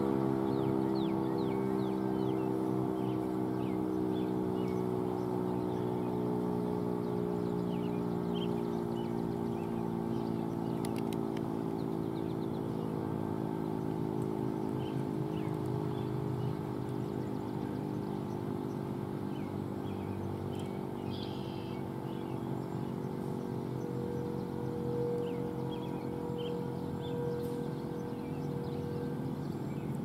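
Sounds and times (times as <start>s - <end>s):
faint bird chirps: 17.2s - 30.0s
warning siren steady tone: 21.4s - 30.0s.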